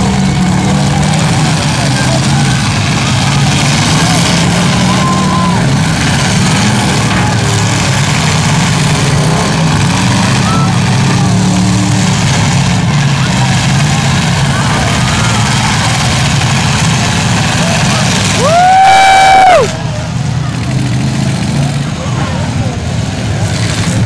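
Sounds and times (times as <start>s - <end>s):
crowd voices: 0.0s - 24.0s
truck engines revving: 0.0s - 24.0s.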